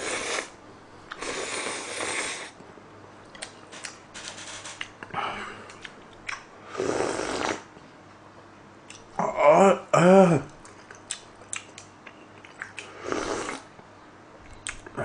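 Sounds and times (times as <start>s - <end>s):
person slurping noodles: 0.0s - 2.6s, 6.7s - 7.7s, 12.8s - 13.7s
chewing: 10.6s - 12.9s.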